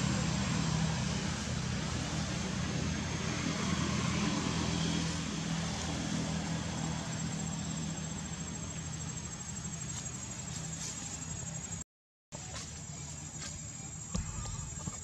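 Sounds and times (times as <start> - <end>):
vehicle engine running: 0.0 - 11.8.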